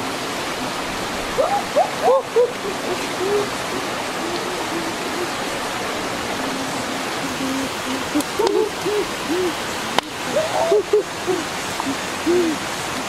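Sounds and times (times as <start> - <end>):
waterfall and stream rushing: 0.0 - 13.0.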